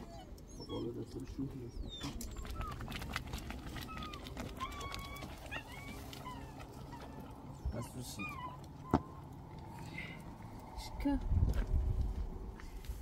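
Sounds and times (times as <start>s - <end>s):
birds chirping: 0.0s - 10.3s
steady low rumble: 6.2s - 13.0s.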